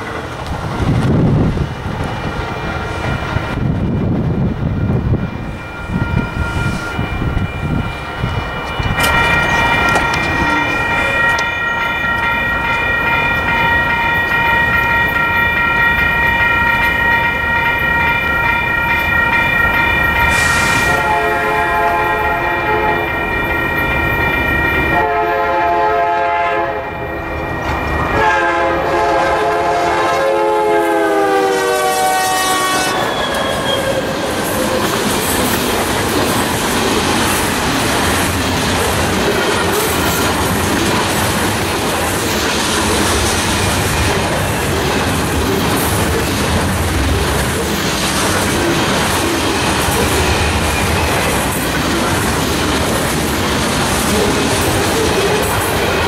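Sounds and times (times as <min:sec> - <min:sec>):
train rumbling and clacking by: 0:00.0 - 0:56.0
railroad crossing bell ringing: 0:02.8 - 0:56.0
locomotive horn blasts: 0:20.3 - 0:23.2, 0:24.9 - 0:27.0, 0:28.2 - 0:33.9.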